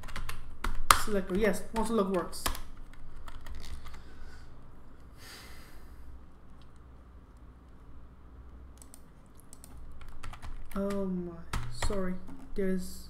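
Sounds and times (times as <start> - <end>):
steady low hum: 0.0 - 13.0
breath into close microphone: 5.2 - 6.1.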